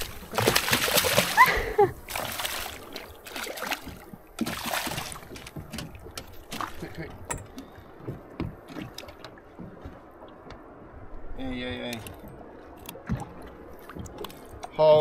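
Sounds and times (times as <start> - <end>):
fish splashing at water surface: 0.0 - 6.9
water sloshing: 0.0 - 15.0
light knocks against hull: 3.7 - 10.7.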